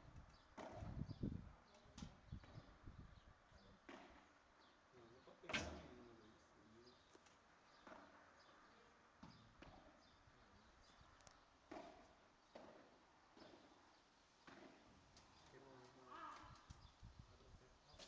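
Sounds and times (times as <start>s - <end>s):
ball struck by paddles: 0.6s - 1.0s, 3.8s - 4.3s, 11.7s - 13.7s, 14.4s - 14.9s.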